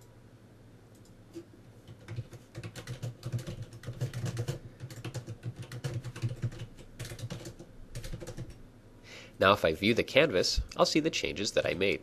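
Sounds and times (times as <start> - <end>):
typing on computer keyboard: 1.9 - 8.6.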